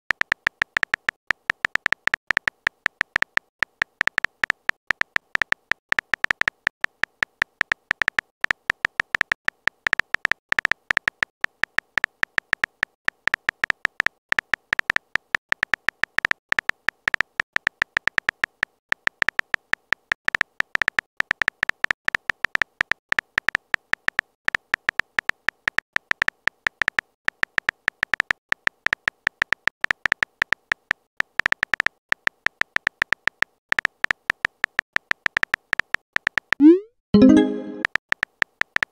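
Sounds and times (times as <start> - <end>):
clicky typing beeps: 36.6 - 37.9.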